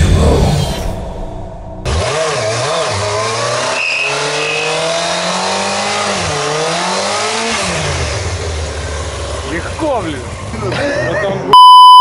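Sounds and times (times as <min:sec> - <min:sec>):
motorcycle engine revving: 0:01.7 - 0:10.6.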